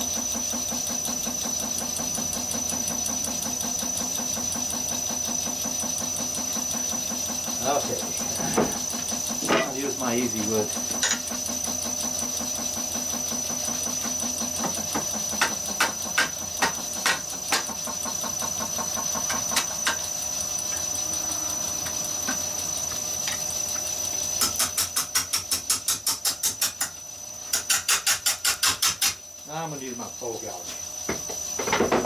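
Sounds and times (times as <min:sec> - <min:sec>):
wood lathe high whine: 0:00.0 - 0:24.6, 0:29.4 - 0:32.0
rapid tapping of tool on log: 0:14.6 - 0:17.7, 0:27.5 - 0:29.2.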